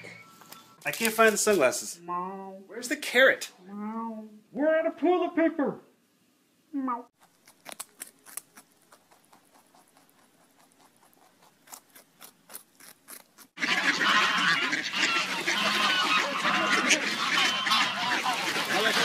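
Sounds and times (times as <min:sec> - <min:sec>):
pet crunching carrot: 0:07.2 - 0:15.1
ducks honking and quacking: 0:13.6 - 0:19.0.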